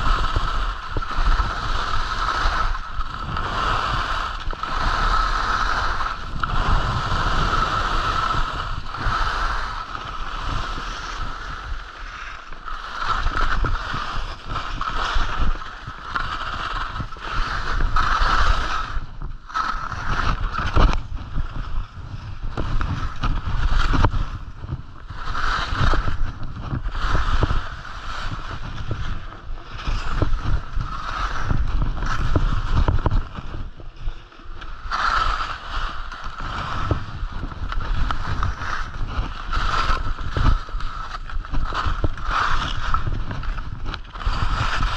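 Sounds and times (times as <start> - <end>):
skis scraping over snow: 0.0 - 44.9
wind rumbling on microphone: 0.0 - 44.9.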